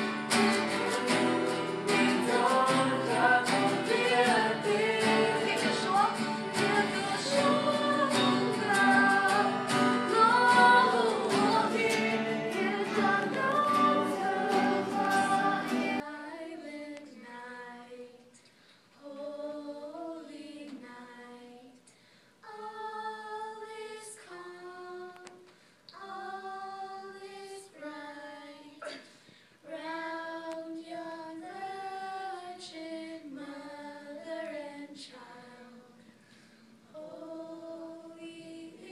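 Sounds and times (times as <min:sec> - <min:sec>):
strummed acoustic guitars: 0:00.0 - 0:16.0
unaccompanied group singing: 0:00.0 - 0:18.0, 0:19.0 - 0:21.6, 0:22.4 - 0:25.3, 0:26.0 - 0:29.0, 0:29.7 - 0:38.9
group singing worship song: 0:00.0 - 0:18.4, 0:19.0 - 0:21.8, 0:22.4 - 0:38.9.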